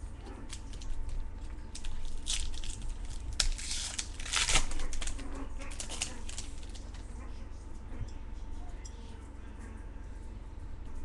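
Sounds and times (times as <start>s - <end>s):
card wrappers crinkling and rustling: 0.4s - 7.1s.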